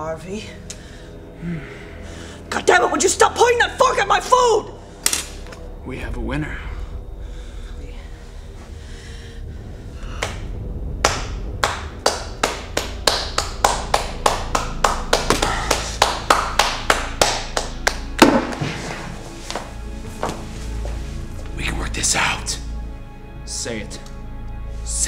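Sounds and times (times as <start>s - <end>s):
person clapping hands: 10.2s - 18.8s.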